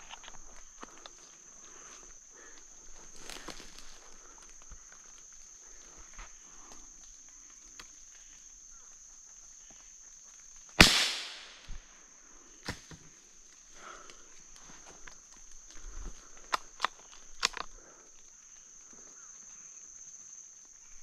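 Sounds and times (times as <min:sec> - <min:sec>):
loud gunshot: 0:10.8 - 0:11.6.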